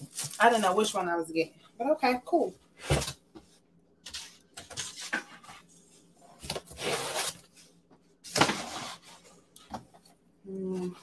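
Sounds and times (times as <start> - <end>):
plastic wrap and foam rustling: 0.0 - 1.3, 4.1 - 9.5.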